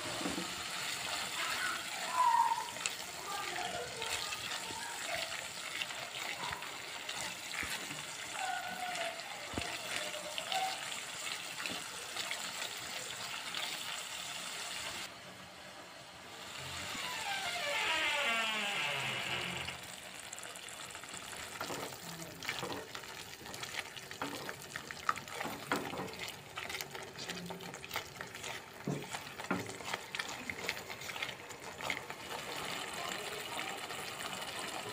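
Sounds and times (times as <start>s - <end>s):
liquid gushing: 0.0s - 15.1s, 18.8s - 34.9s
paste sizzling in oil: 0.0s - 15.1s, 19.8s - 34.9s
spatula scraping a pan: 21.6s - 32.7s.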